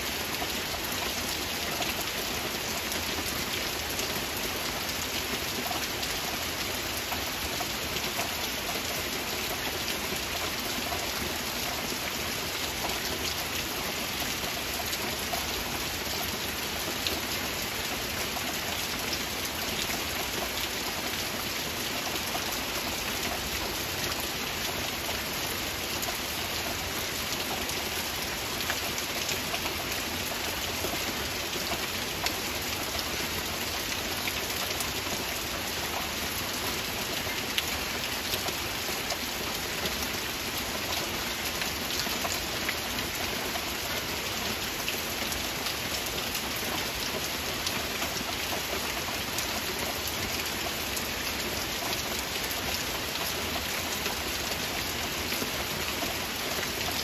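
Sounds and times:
heavy rain: 0:00.0 - 0:57.0.

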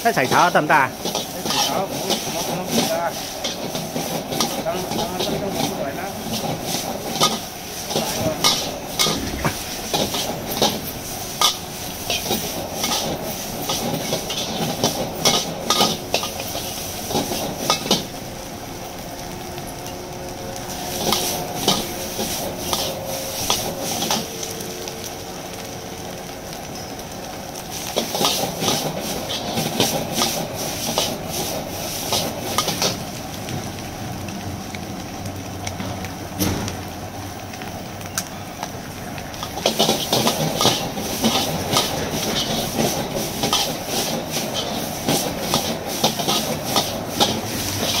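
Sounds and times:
noodles sizzling: 0:00.0 - 0:34.7, 0:36.9 - 0:48.0
gas burner noise: 0:00.0 - 0:48.0
metal spatula scraping a wok: 0:01.0 - 0:18.0, 0:39.4 - 0:48.0.

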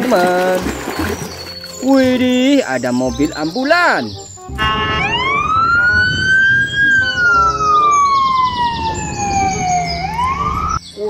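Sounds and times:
ambulance siren wailing: 0:00.6 - 0:10.8
low rumble: 0:04.3 - 0:10.8.

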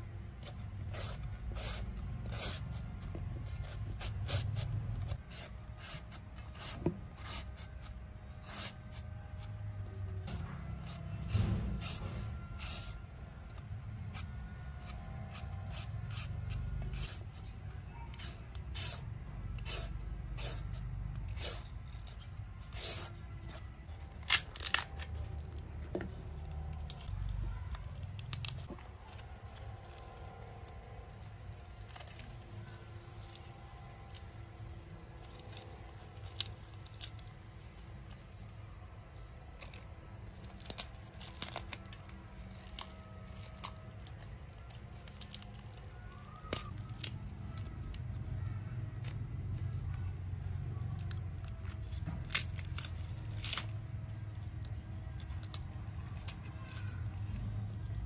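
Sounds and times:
food tearing: 0:14.2 - 0:25.6, 0:39.6 - 0:49.2, 0:50.9 - 0:57.9.

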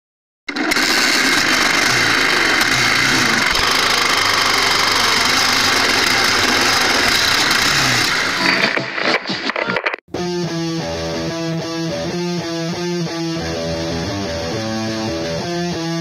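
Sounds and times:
engine running steadily: 0:00.5 - 0:08.4.

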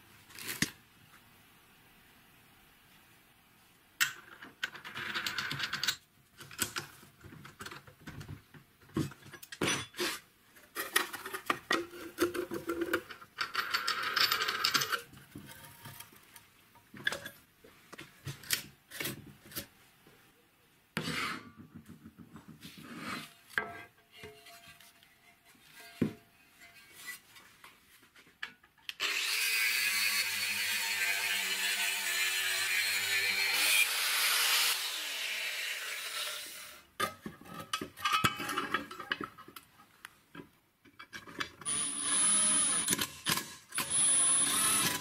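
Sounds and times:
metal parts clinking and scraping: 0:10.8 - 0:16.2, 0:37.6 - 0:39.4.

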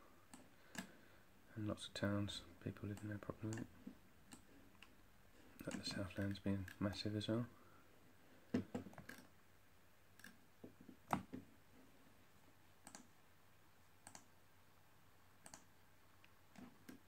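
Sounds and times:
computer mouse clicks: 0:00.3 - 0:01.0, 0:02.9 - 0:03.7, 0:04.3 - 0:05.0, 0:10.2 - 0:10.4, 0:12.8 - 0:13.1, 0:14.0 - 0:14.3, 0:15.4 - 0:17.0.

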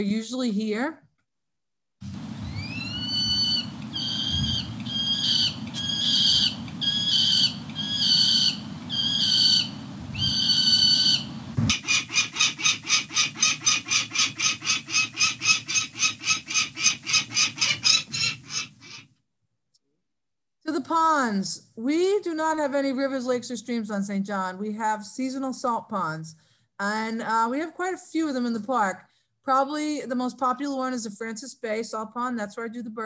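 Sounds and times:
low background rumble: 0:02.0 - 0:11.8
falcon calls: 0:02.4 - 0:19.0
rapid sharp falcon calls: 0:02.4 - 0:19.1.

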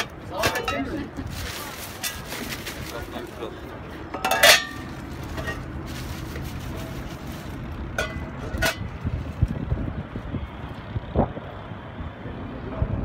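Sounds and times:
distant city: 0:00.0 - 0:13.0
wind: 0:00.0 - 0:13.0.

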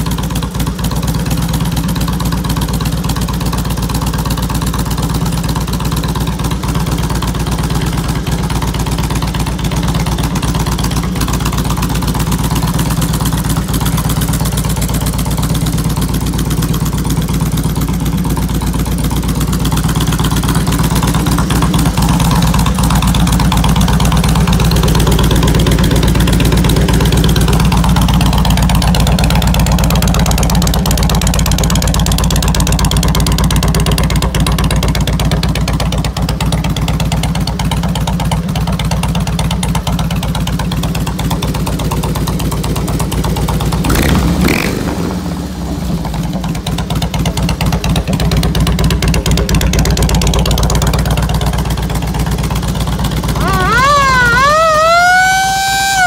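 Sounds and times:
motorcycle engine idling: 0:00.0 - 0:56.0.

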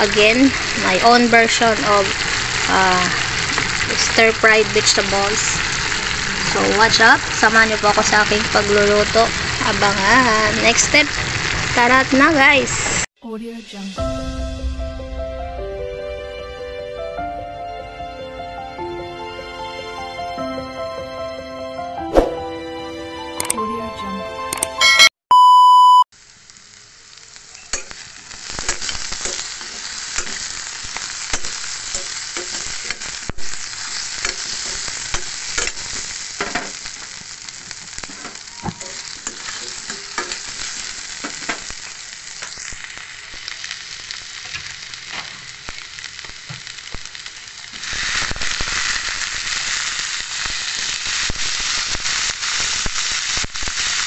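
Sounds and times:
food sizzling in hot oil: 0:00.0 - 0:15.1, 0:26.1 - 0:54.0.

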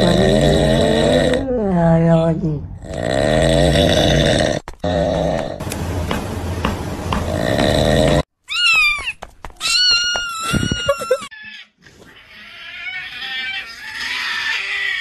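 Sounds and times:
rough noisy grunting: 0:07.2 - 0:08.3
high-pitched animal cries: 0:08.4 - 0:15.0.

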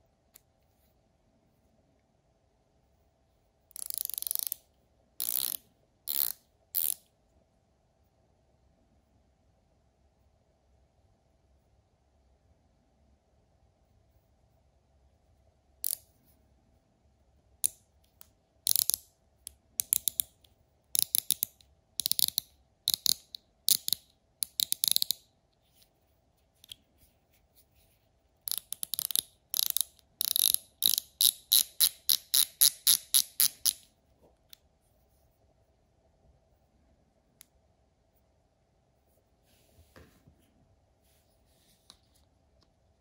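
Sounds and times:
ratchet clicking: 0:03.8 - 0:04.6, 0:05.2 - 0:07.0, 0:28.5 - 0:33.8.

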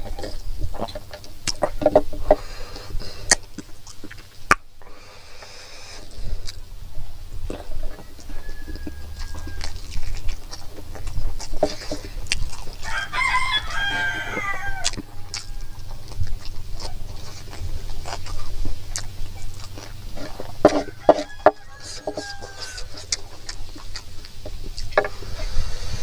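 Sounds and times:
wet chewing and lip-smacking: 0:00.0 - 0:26.0
rooster crowing: 0:07.8 - 0:10.2, 0:12.8 - 0:16.1, 0:20.6 - 0:23.2.

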